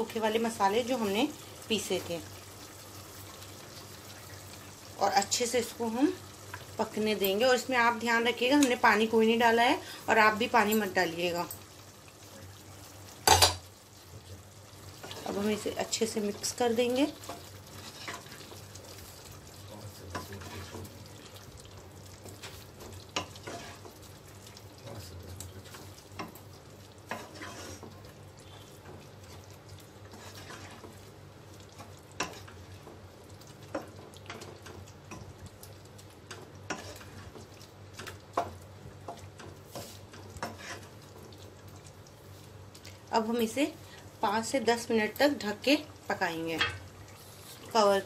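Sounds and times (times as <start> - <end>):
masala sizzling: 0.0 - 48.0
wooden spoon scraping pot: 20.1 - 21.0, 23.2 - 24.0, 27.1 - 29.4, 30.1 - 31.0, 36.7 - 38.5, 39.1 - 41.0.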